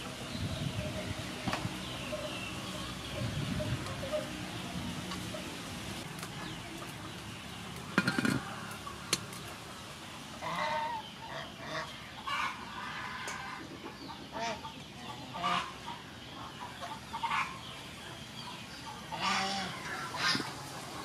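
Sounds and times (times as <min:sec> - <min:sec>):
farm animals calling: 0:00.0 - 0:21.0
metal lid clanking onto pot: 0:07.9 - 0:08.5.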